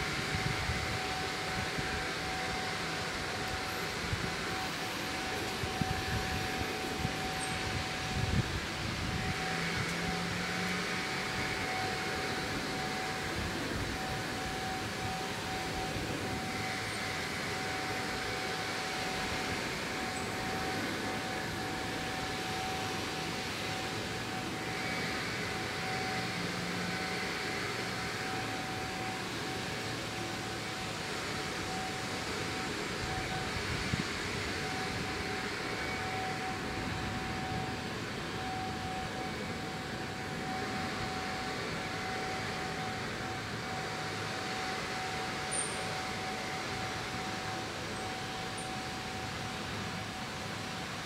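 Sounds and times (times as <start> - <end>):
background hum and hiss: 0.0 - 51.0
thin high whine: 0.0 - 51.0.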